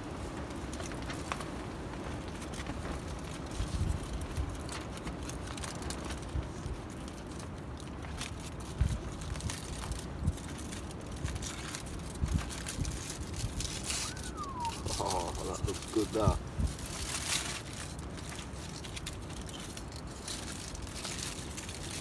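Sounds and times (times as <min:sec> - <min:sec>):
aluminium foil crinkling: 0:00.0 - 0:22.0.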